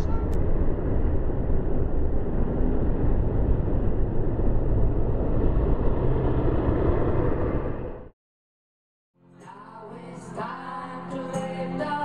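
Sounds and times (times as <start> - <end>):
road traffic rumble: 0.0 - 8.1
bus passing: 0.0 - 8.2.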